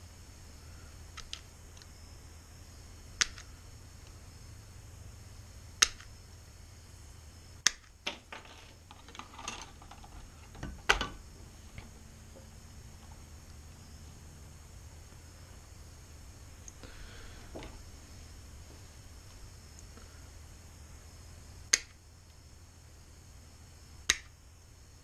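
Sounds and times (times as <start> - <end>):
wire mesh rustling: 8.0 - 13.4.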